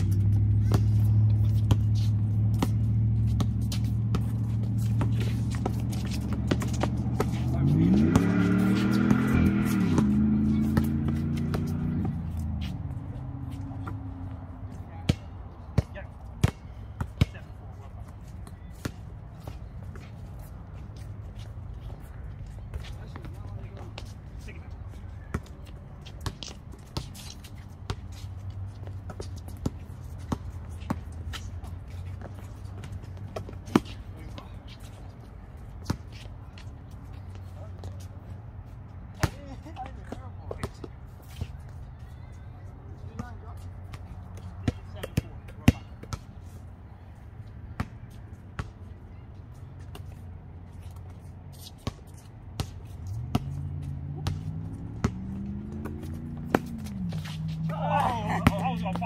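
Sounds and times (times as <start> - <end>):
basketball bouncing on concrete: 0.0 - 13.0, 14.7 - 17.5, 39.1 - 41.0, 43.1 - 46.3, 51.8 - 59.0
sneakers shuffling on concrete: 0.0 - 42.4, 49.5 - 59.0.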